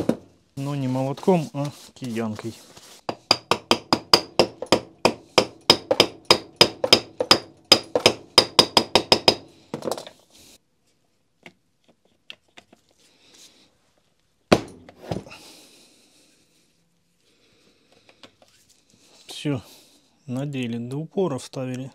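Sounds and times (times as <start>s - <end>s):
rubber mallet tapping metal: 3.1s - 9.5s.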